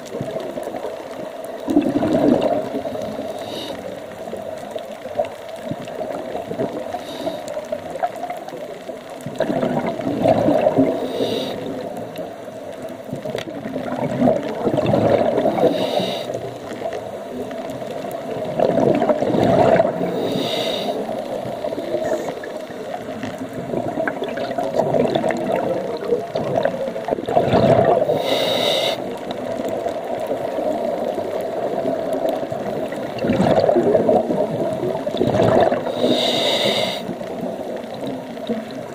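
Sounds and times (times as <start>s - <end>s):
exhaust bubbling underwater: 1.6s - 3.4s, 9.2s - 12.0s, 13.1s - 15.8s, 18.2s - 38.9s
regulator inhale hiss: 2.9s - 4.0s, 6.9s - 7.7s, 10.8s - 11.8s, 15.6s - 16.4s, 20.1s - 22.4s, 28.1s - 29.2s, 35.8s - 37.2s.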